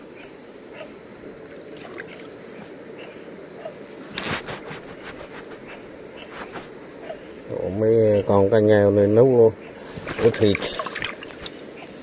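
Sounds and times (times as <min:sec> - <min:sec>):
night insects trilling: 0:00.0 - 0:12.0
stream running: 0:01.7 - 0:02.4, 0:10.0 - 0:11.6.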